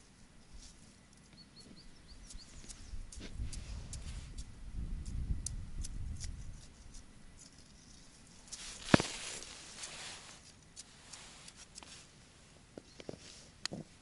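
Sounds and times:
suit fabric rustling: 8.6 - 10.4.

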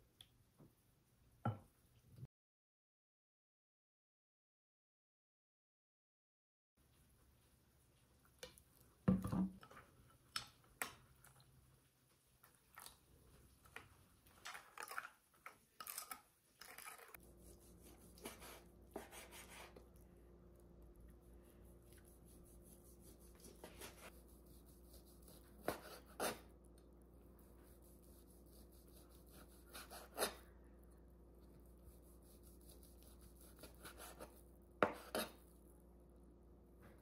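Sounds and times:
faint steady hum: 17.2 - 37.0
knife slicing meat on cutting board: 23.0 - 26.4, 27.8 - 30.4, 32.0 - 35.4.

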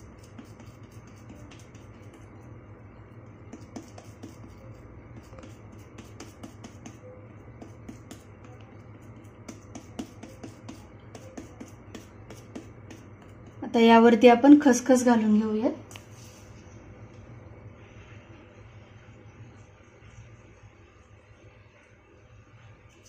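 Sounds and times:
fingers patting dough: 0.0 - 2.4, 3.4 - 13.7
low steady hum: 0.0 - 23.0.

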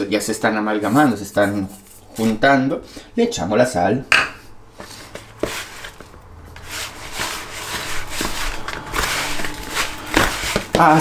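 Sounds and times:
utensil scraping dough in bowl: 0.8 - 2.4, 4.7 - 11.0
utensil knocking bowl: 7.7 - 11.0.

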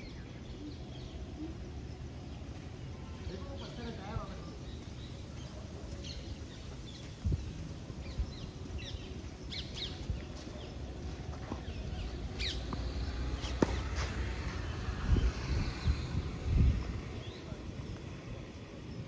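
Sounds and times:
small birds chirping: 0.0 - 19.0
tennis racket hitting ball: 12.7 - 14.4.

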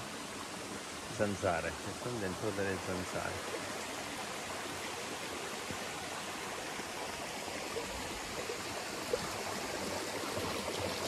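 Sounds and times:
stream flowing over rock: 0.0 - 11.0.

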